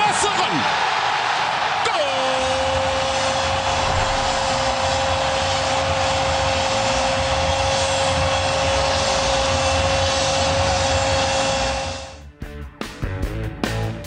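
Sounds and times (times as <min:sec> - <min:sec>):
stadium crowd cheering: 0:00.0 - 0:12.2
commentator's drawn-out goal cry: 0:01.8 - 0:03.4.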